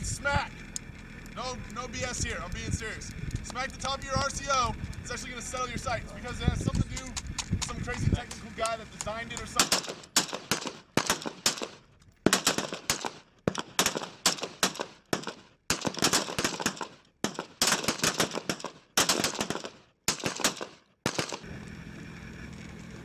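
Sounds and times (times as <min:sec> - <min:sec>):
steady low hum: 0:00.0 - 0:23.0
rifle shots: 0:07.0 - 0:21.5.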